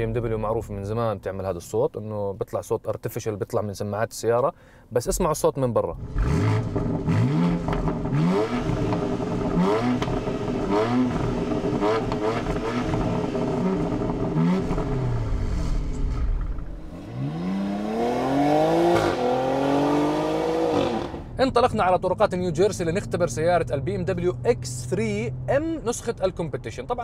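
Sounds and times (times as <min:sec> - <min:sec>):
car engine revving: 0:06.0 - 0:21.4.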